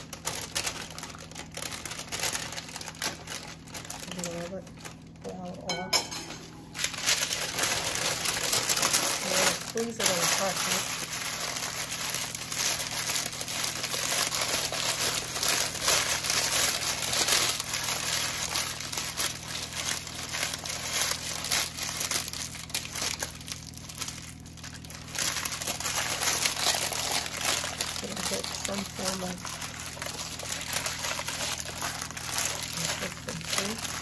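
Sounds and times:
parchment paper crinkling: 0:00.0 - 0:05.6, 0:06.3 - 0:34.0.

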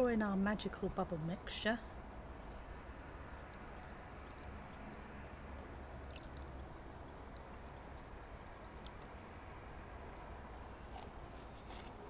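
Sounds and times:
low steady rumble: 0:00.0 - 0:12.0
liquid trickling into funnel: 0:02.2 - 0:09.5.

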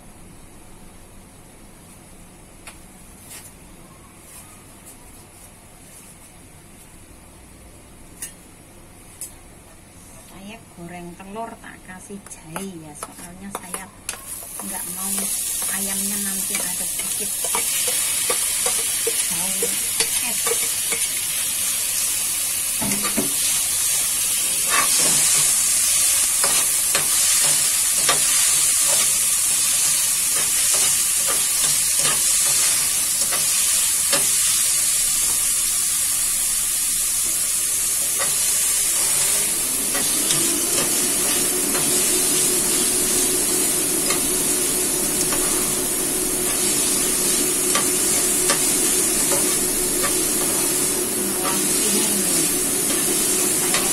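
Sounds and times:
food sizzling in hot oil: 0:14.2 - 0:53.9.

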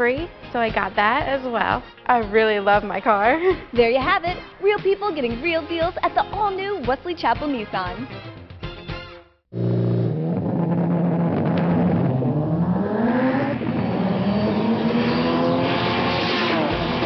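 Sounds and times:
drag racing car engine accelerating: 0:09.5 - 0:17.0.

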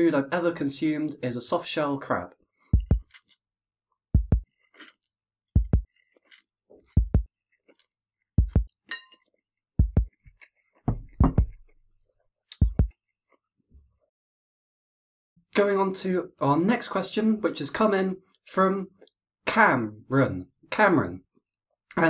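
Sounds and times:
low double thump: 0:10.9 - 0:11.6.

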